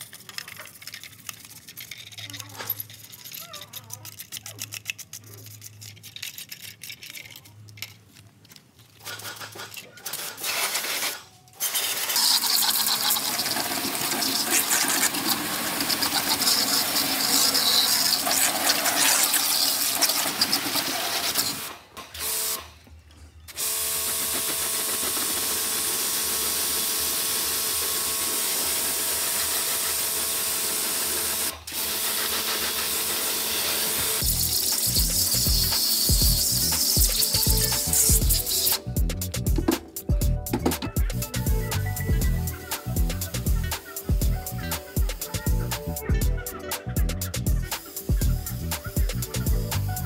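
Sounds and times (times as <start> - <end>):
pressure washer water hiss: 11.7 - 21.7, 24.8 - 38.8, 47.7 - 49.9
pump motor hum: 11.8 - 22.5.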